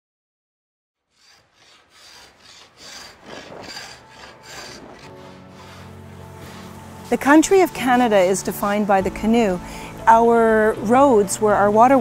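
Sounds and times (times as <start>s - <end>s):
hand tool shaving wood: 1.0s - 8.9s.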